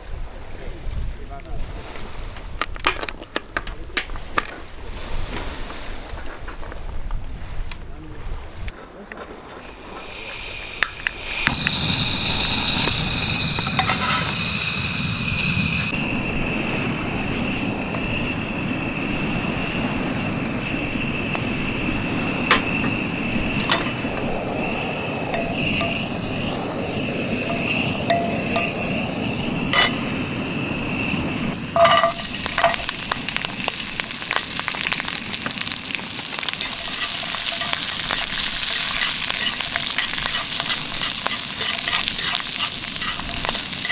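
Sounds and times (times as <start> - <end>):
gas burner hissing: 9.6 - 43.9
beans sizzling in hot oil: 9.9 - 43.9.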